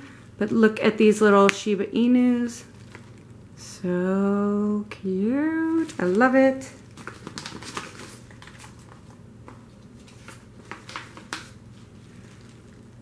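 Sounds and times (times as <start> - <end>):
faint steady hum: 0.0 - 13.0
sticker sheets rustling: 5.6 - 12.9.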